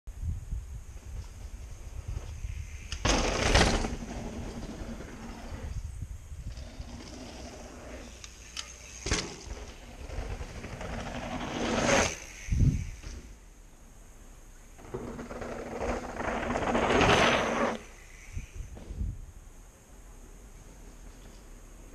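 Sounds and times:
bike tyres rattling over dirt: 0:00.6 - 0:13.3, 0:14.8 - 0:18.0.

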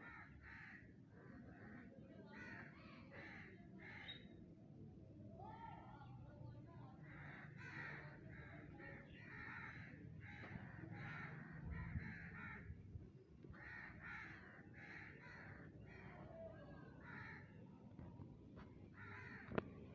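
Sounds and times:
crows cawing: 0:00.0 - 0:04.3, 0:07.0 - 0:12.8, 0:13.5 - 0:16.2, 0:17.0 - 0:17.5, 0:19.0 - 0:19.6.

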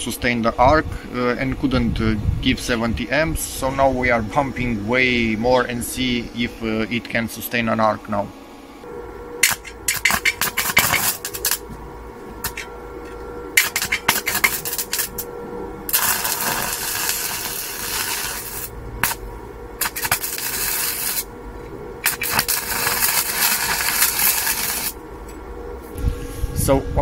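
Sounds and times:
faint steady hum: 0:00.0 - 0:27.0
welding arc crackling: 0:09.4 - 0:25.0.

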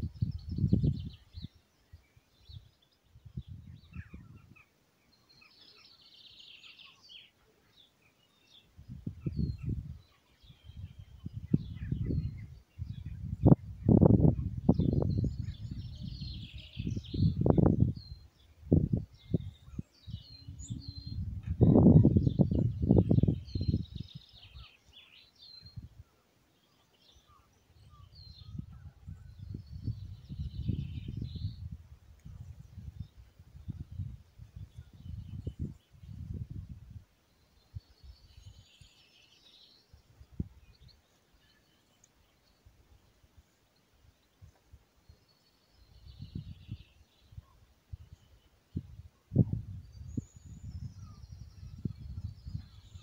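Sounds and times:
wind buffeting microphone: 0:00.0 - 0:01.6, 0:02.4 - 0:04.6, 0:08.8 - 0:24.7, 0:27.8 - 0:37.0, 0:39.9 - 0:40.9, 0:45.8 - 0:53.0
small songbirds chirping: 0:00.0 - 0:53.0.

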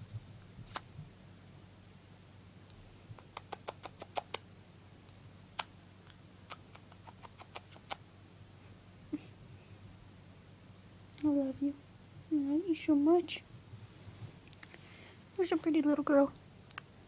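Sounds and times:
bird beak clicking: 0:03.2 - 0:04.4, 0:06.5 - 0:08.0.

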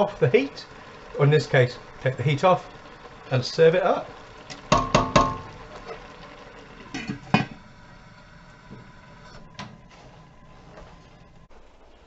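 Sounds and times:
sharp knocks: 0:04.7 - 0:05.5
metal pot lid clanking: 0:06.9 - 0:07.6.

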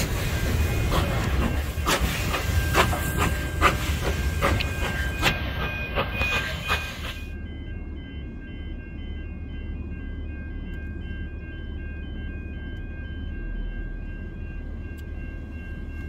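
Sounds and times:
steam hiss: 0:00.0 - 0:07.2
steady repeating tones: 0:00.0 - 0:16.0
steam train chuffing: 0:00.0 - 0:16.0.

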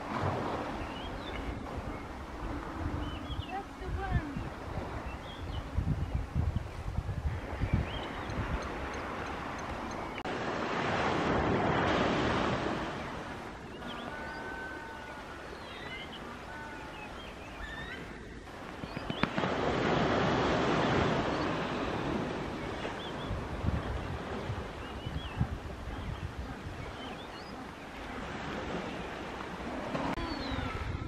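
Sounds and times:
surf washing onto shore: 0:08.8 - 0:14.2, 0:18.5 - 0:24.9.

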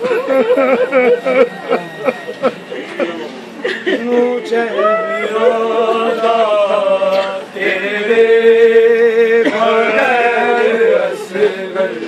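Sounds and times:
man singing a mourning lament: 0:03.8 - 0:12.0.

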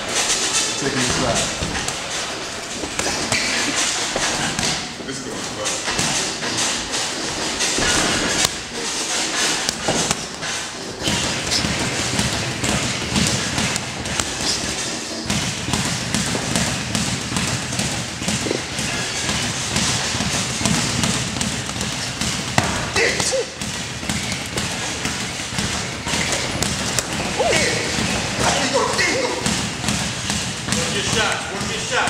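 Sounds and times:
boxing gloves thudding: 0:01.1 - 0:05.0, 0:05.8 - 0:06.5, 0:09.6 - 0:32.0
voices talking: 0:27.3 - 0:29.5.

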